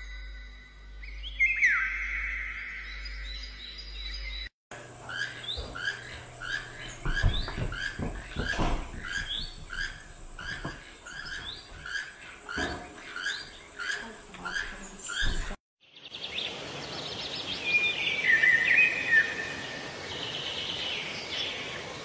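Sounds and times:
bird chirping: 0.0 - 21.9
soft rustling thumps: 5.5 - 13.0.

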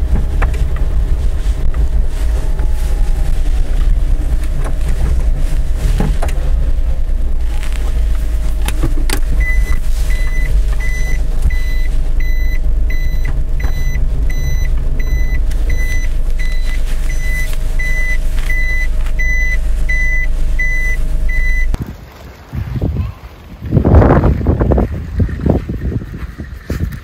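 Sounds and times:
van engine rumbling: 0.0 - 27.0
reverse warning beeper: 9.4 - 21.8.

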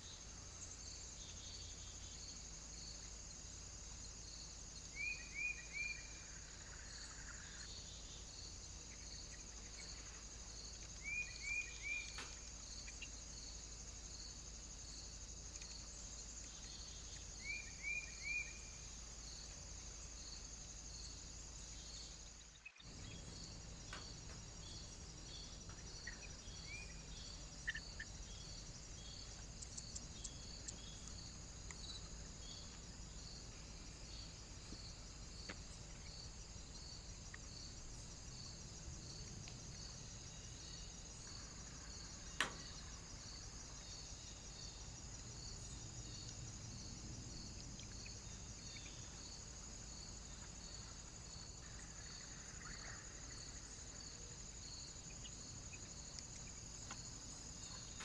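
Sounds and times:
insect chirping trill: 0.0 - 58.0.

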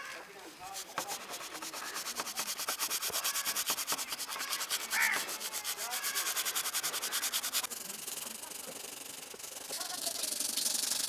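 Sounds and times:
sandpaper scrubbing metal blade: 0.6 - 11.0
bird calling: 1.6 - 2.2, 3.1 - 11.0.

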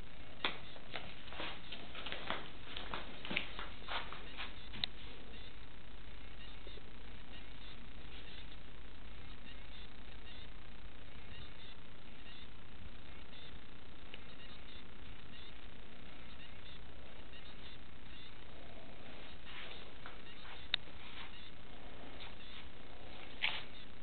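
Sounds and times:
microphone hiss: 0.0 - 24.0.

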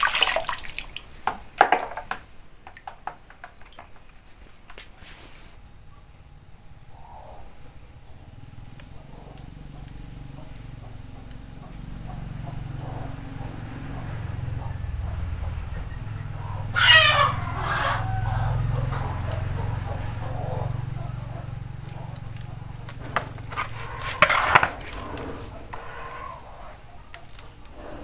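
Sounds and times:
low steady hum: 0.0 - 28.0
chicken calling: 9.0 - 28.0.

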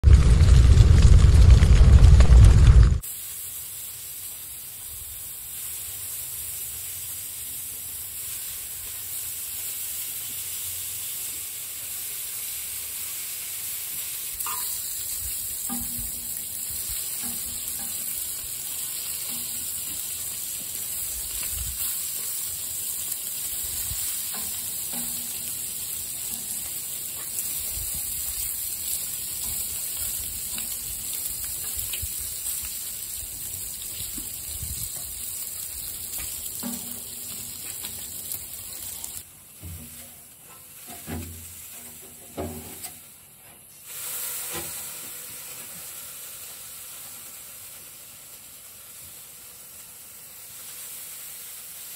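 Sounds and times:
bacon sizzling on a griddle: 3.0 - 51.9
tongs clicking on metal: 14.4 - 14.8.

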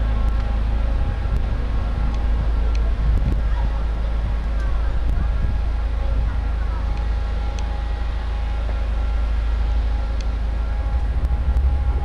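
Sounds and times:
low mechanical rumble: 0.0 - 12.0
faint high whine: 4.8 - 12.0.

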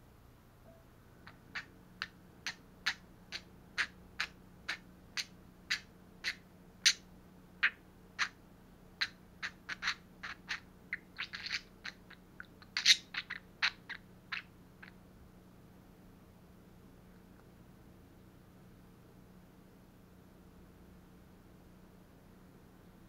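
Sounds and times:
budgerigar clicking: 1.2 - 7.0, 7.6 - 8.4, 9.0 - 15.0
longer noisy bird sounds: 9.0 - 15.0.

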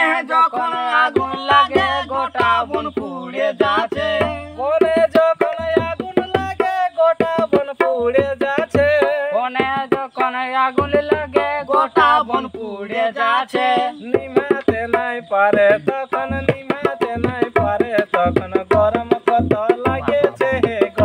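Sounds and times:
man singing: 0.0 - 21.0
hand drum beating: 1.1 - 10.1, 14.1 - 21.0.

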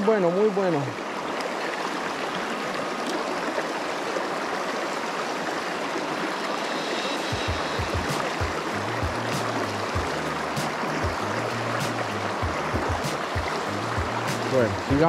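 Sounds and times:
creek water rushing: 0.0 - 15.0
soft low thumps: 7.4 - 11.3, 12.4 - 15.0.

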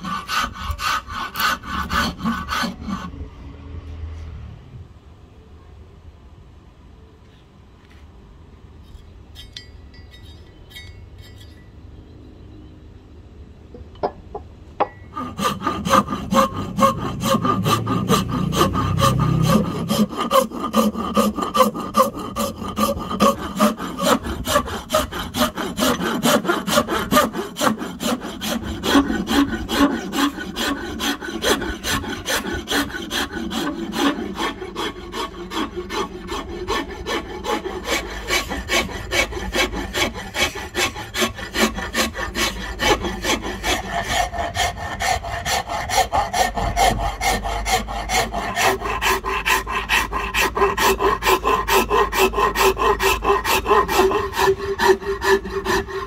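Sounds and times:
file rasping on wood: 0.0 - 3.2, 15.1 - 56.0.

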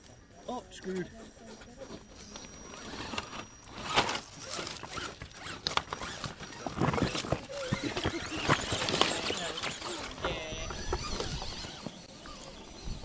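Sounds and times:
small electric motor whirring: 0.0 - 13.0.

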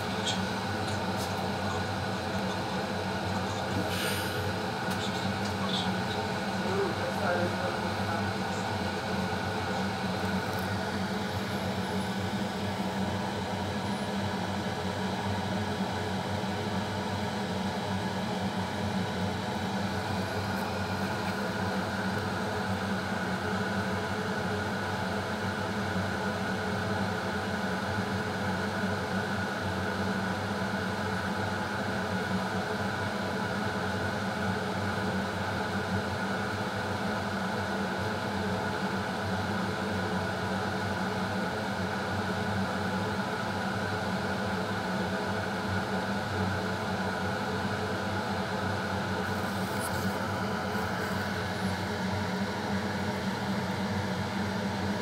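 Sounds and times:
machine humming: 0.0 - 15.1.

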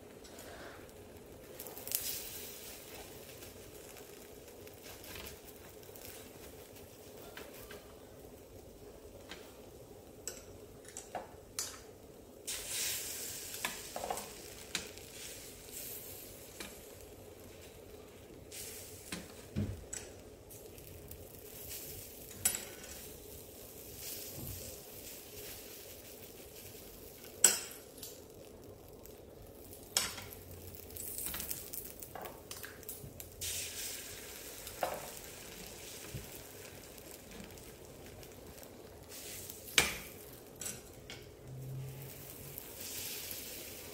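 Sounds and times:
egg sizzling in frying pan: 0.0 - 43.9.

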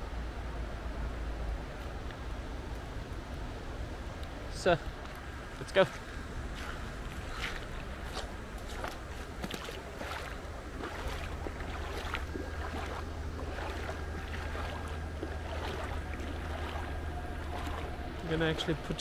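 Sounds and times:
stream water rushing: 0.1 - 19.0
footsteps: 5.8 - 18.0.

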